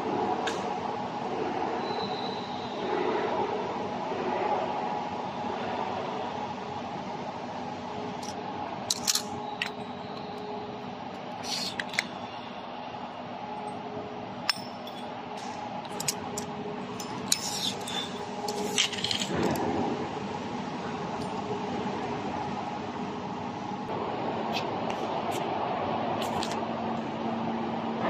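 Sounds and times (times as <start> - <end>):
factory machinery hum: 0.0 - 28.0
metallic clicks and clinks: 8.2 - 9.9, 14.4 - 15.2, 15.8 - 19.7.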